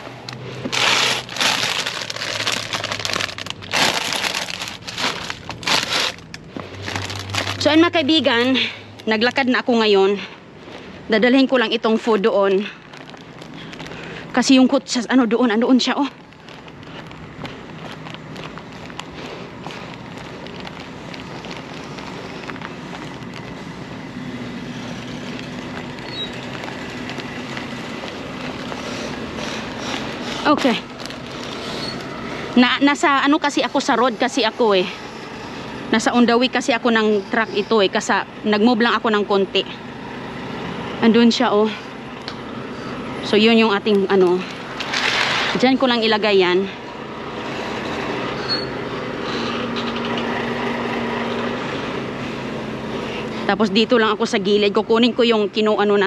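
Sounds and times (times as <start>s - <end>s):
truck engine humming: 0.0s - 56.0s
plastic packaging crinkling: 0.2s - 7.9s, 11.8s - 14.4s, 15.7s - 32.5s
faint footsteps on pavement: 16.0s - 24.6s, 25.3s - 32.6s.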